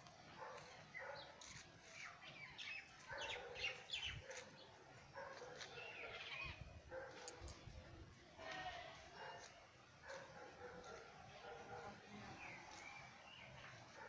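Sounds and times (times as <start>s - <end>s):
small birds chirping: 0.3s - 7.8s, 11.7s - 14.0s.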